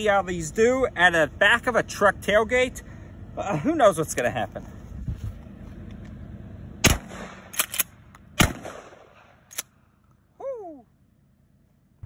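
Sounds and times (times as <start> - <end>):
shotgun shots: 6.8 - 9.7.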